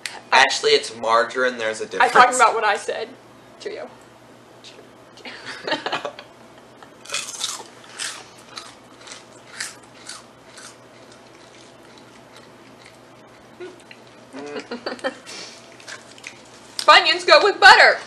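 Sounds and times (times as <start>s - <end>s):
snack crunching and chewing: 7.0s - 14.7s, 15.3s - 16.9s.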